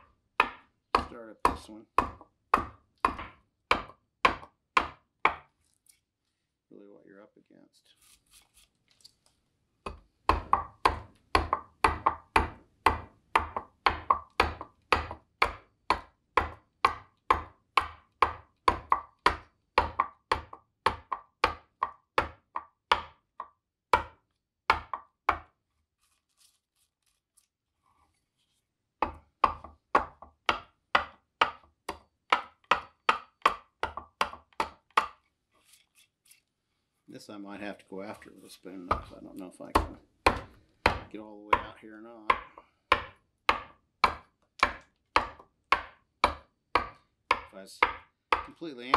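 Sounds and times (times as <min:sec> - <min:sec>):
adze chopping wood: 0:00.0 - 0:05.5, 0:09.9 - 0:25.6, 0:29.0 - 0:35.2, 0:38.9 - 0:48.9.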